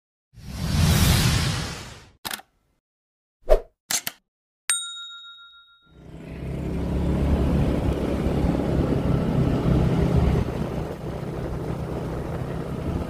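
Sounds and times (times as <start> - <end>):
motorbike engine running: 6.0 - 13.0.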